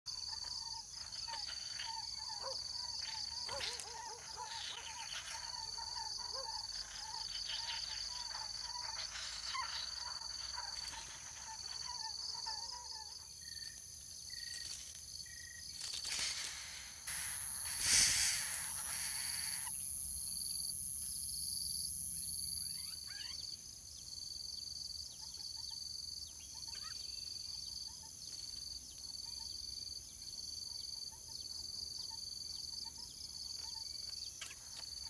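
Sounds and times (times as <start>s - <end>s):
bird chirps: 0.1s - 19.8s, 22.2s - 35.0s
high insect buzz: 0.1s - 23.8s.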